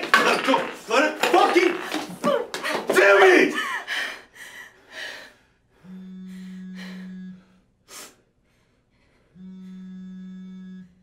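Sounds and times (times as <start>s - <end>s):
phone vibrating on hard surface: 5.8s - 7.6s, 9.3s - 11.0s.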